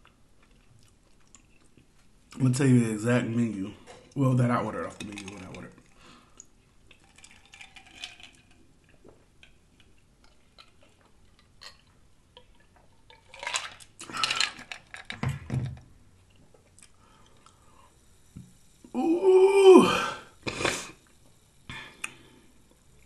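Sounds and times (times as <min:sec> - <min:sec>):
person sipping and gulping: 0:18.9 - 0:22.8.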